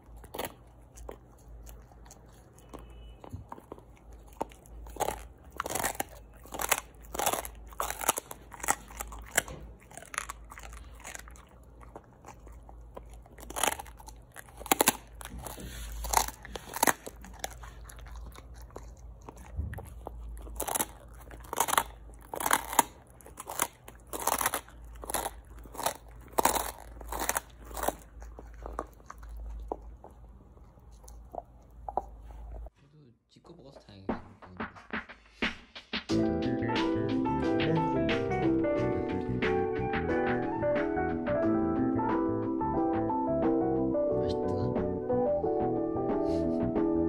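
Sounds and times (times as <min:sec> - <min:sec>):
dog crunching food: 0:00.0 - 0:32.7.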